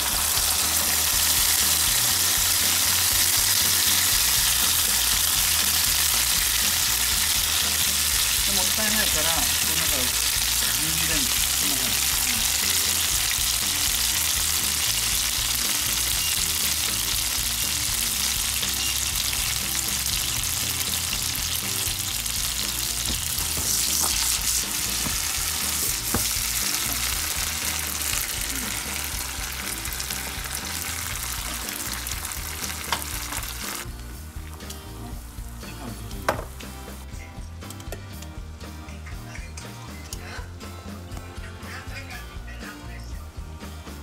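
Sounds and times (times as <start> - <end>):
food sizzling in frying pan: 0.0 - 34.6.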